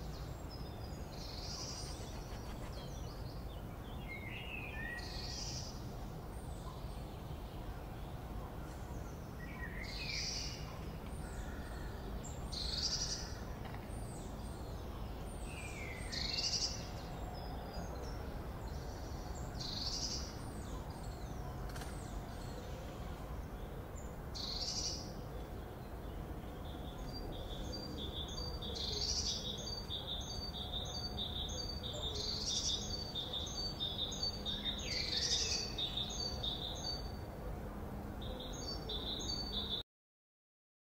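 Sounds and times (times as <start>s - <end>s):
low background noise: 0.0s - 39.8s
birds chirping and calling: 1.3s - 3.3s.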